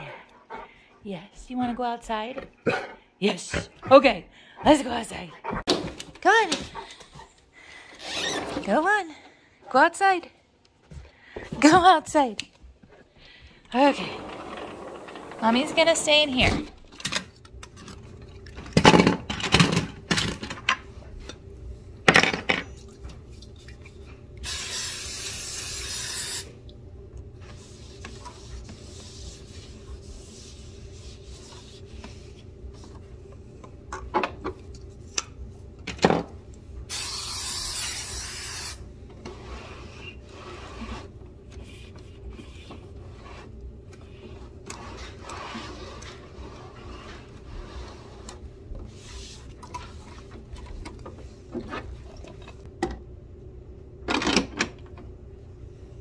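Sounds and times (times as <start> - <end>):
aerosol spray hissing: 36.9 - 38.8.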